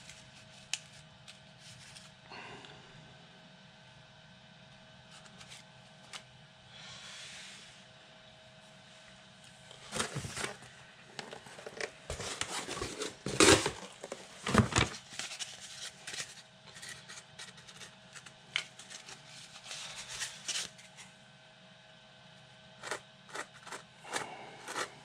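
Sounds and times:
faint steady hum: 0.0s - 25.0s
cardboard scraping on floor: 9.8s - 15.4s, 22.8s - 25.0s.

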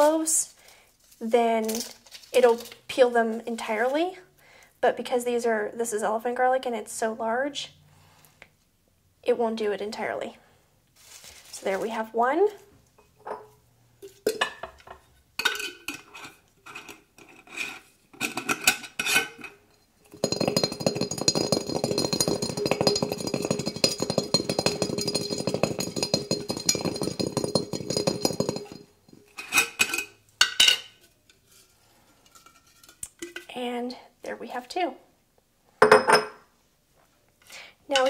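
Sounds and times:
garlic cloves rattling in glass jar: 18.2s - 30.8s
garlic knocking into glass jar: 20.1s - 28.9s.

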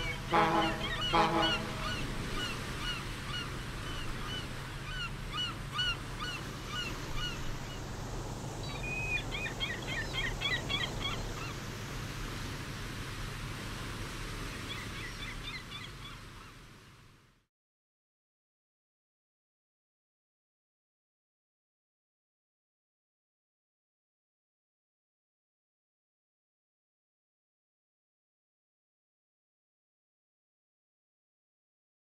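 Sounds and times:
gulls calling: 0.0s - 7.9s, 8.6s - 11.8s
sea ambience: 0.0s - 17.5s.

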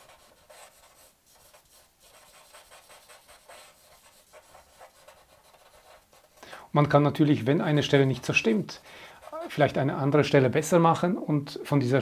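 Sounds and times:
charcoal scratching on paper: 0.0s - 6.4s.

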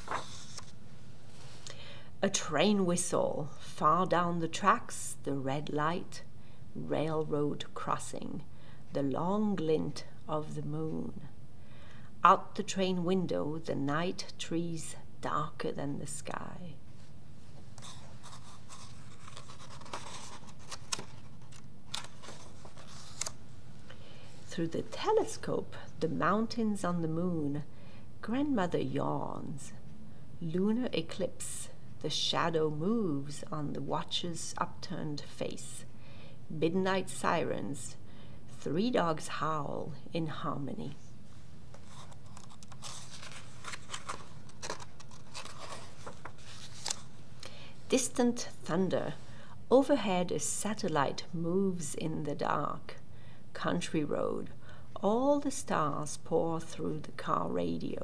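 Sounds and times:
paper page rustling: 0.0s - 0.8s, 17.7s - 23.4s, 41.7s - 47.2s.

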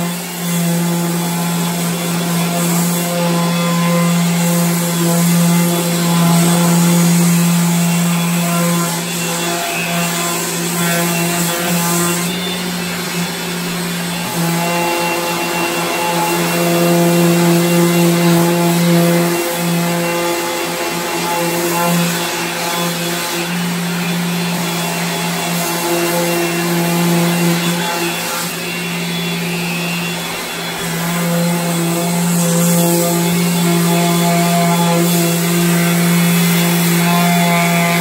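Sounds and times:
orbital sander humming: 0.0s - 38.0s.

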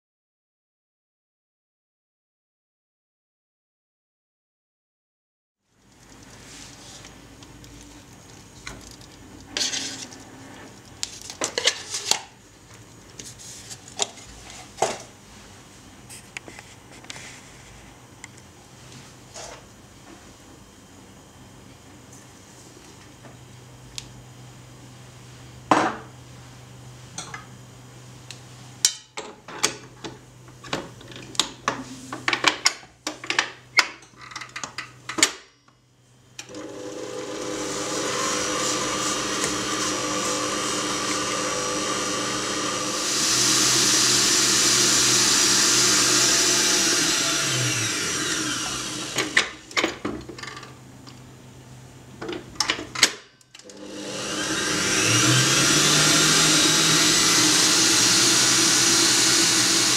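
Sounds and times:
stand mixer whisking: 36.5s - 49.5s, 53.7s - 59.9s.

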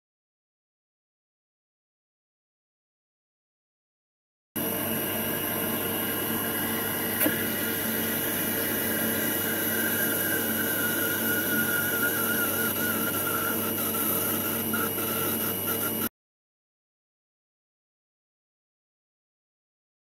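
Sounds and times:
machine hiss and hum: 4.6s - 16.1s
thin wavering whine: 4.6s - 16.1s.

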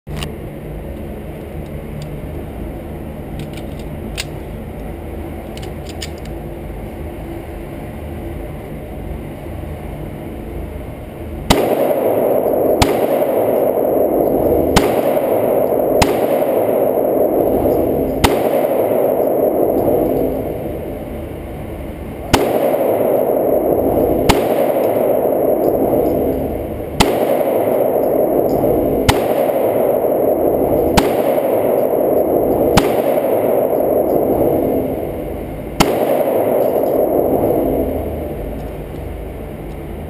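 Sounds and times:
pistol handling clicks: 5.5s - 6.4s
pistol shots echoing indoors: 11.4s - 39.3s.

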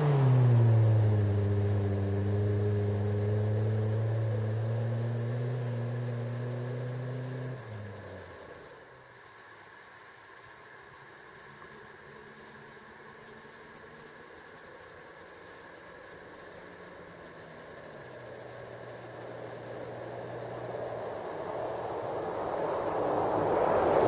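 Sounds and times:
car exhaust droning: 0.0s - 9.1s, 16.0s - 24.0s.

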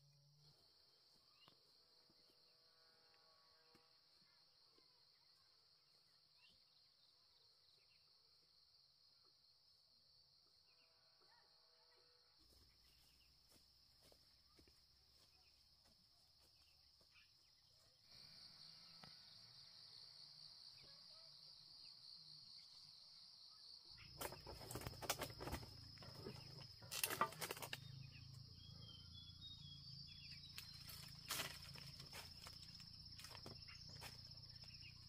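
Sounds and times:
insects chirring: 12.5s - 35.0s.

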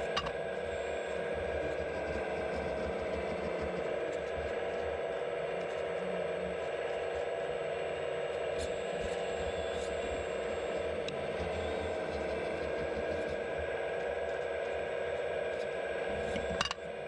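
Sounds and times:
model excavator hydraulic whine: 0.0s - 17.0s.

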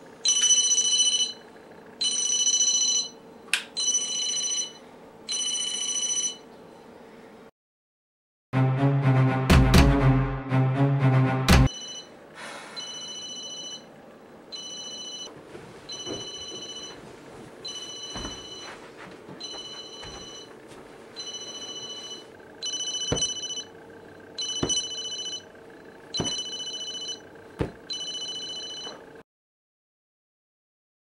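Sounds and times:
phone ringing: 0.2s - 3.2s, 3.8s - 6.5s, 11.7s - 12.2s, 12.8s - 13.9s, 14.5s - 15.3s, 15.9s - 17.0s, 17.6s - 18.8s, 19.4s - 20.6s, 21.2s - 23.8s, 24.4s - 29.2s
short dull thumps: 27.6s - 27.8s.

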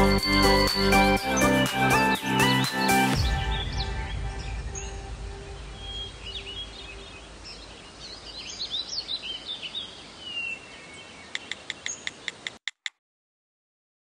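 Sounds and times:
birds chirping: 0.0s - 12.6s
short ticking bird calls: 11.3s - 13.0s.

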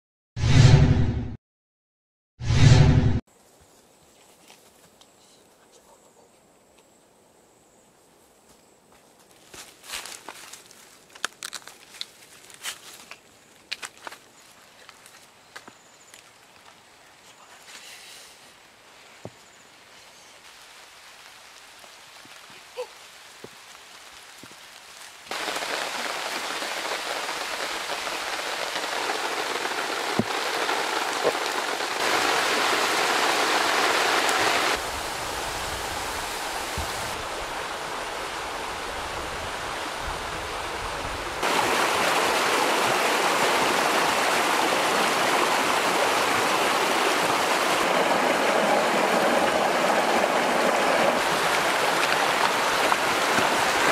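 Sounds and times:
rushing water hiss: 17.7s - 53.9s.

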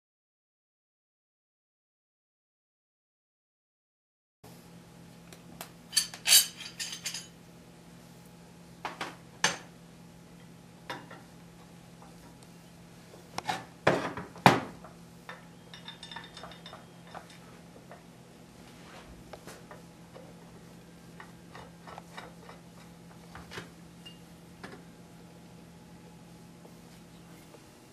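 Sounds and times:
steady low hum: 4.5s - 27.9s
metal tools clinking on workbench: 5.9s - 7.4s, 15.7s - 17.4s.

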